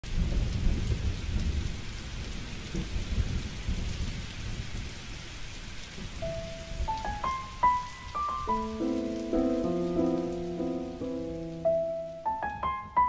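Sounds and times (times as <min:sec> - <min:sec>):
steady rain: 0:00.0 - 0:13.0
low rumble of thunder: 0:00.1 - 0:07.8
held musical note: 0:06.2 - 0:13.0.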